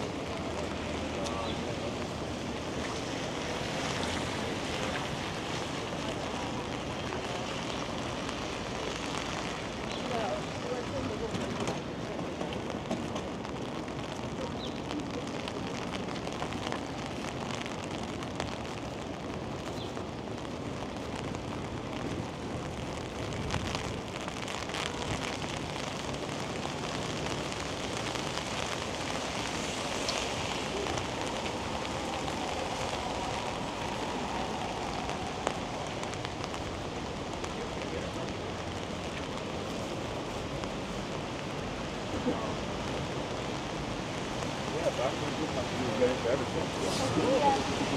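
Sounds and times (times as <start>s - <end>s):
faint ticks of raindrops: 0.0s - 47.9s
rain hiss: 0.0s - 47.9s.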